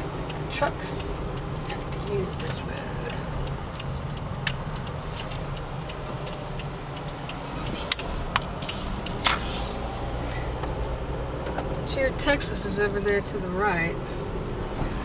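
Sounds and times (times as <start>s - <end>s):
car engine and road rumble: 0.0s - 15.0s
sharp clicks and knocks: 0.3s - 9.5s.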